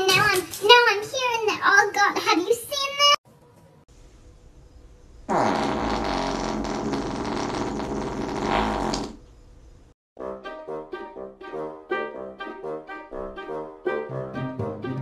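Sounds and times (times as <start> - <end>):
long buzzy fart: 5.3 - 9.3.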